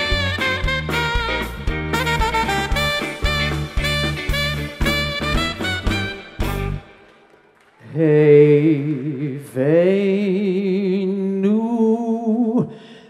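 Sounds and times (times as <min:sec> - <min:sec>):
man singing unaccompanied: 0:07.8 - 0:12.8.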